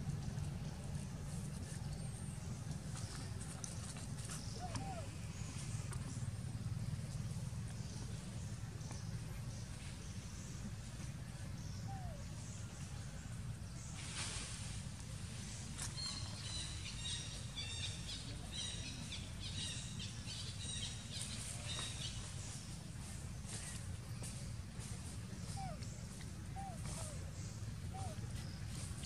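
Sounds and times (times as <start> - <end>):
hiss: 14.0 - 14.8.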